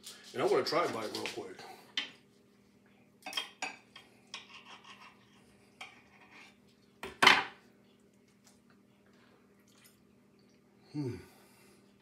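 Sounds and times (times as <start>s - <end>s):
knife and fork scraping a plate: 3.3s - 6.6s.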